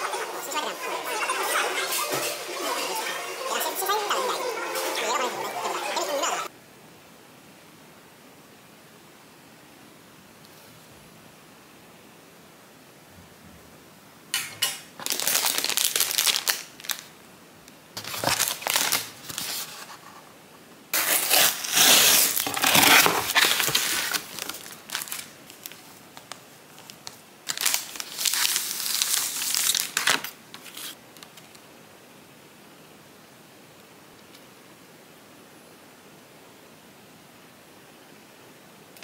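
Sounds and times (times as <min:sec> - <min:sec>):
plastic wrapping crinkling: 0:15.0 - 0:17.2, 0:18.0 - 0:20.0, 0:21.0 - 0:31.6.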